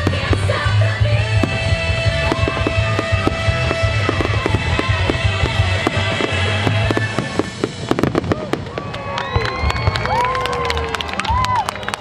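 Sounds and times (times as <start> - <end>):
loud music: 0.0 - 8.5
fireworks bursting and crackling: 0.0 - 11.5.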